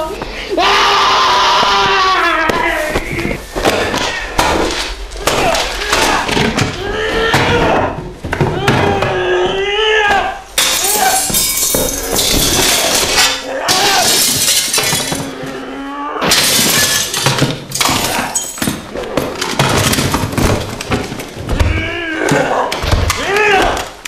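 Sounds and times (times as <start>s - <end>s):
glass smashing and clattering: 10.6s - 15.4s, 16.2s - 21.0s.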